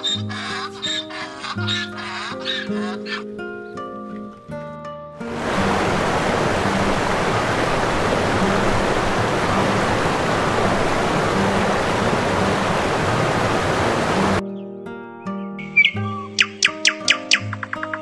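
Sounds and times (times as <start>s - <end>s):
sea water rushing: 5.2s - 14.4s.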